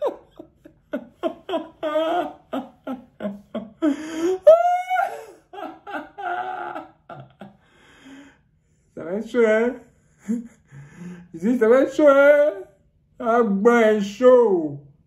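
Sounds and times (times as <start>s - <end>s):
man laughing: 0.0s - 7.8s, 9.3s - 12.0s.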